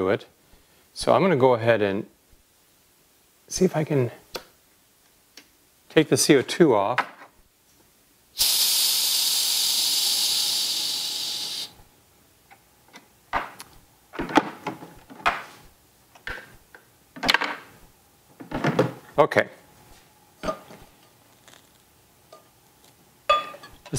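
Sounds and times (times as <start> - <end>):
pressurised gas hissing: 8.4 - 11.8.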